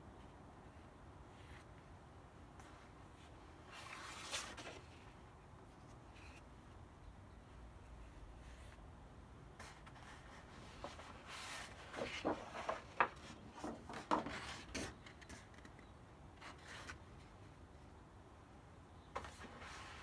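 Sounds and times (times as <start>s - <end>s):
paper sheets rustling and scraping: 3.7s - 5.2s, 9.6s - 15.8s.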